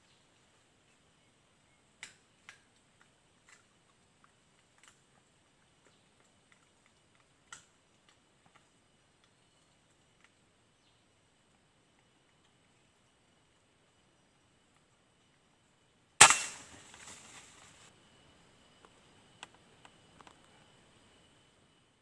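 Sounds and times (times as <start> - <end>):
faint clicks and snaps: 2.0 - 10.4.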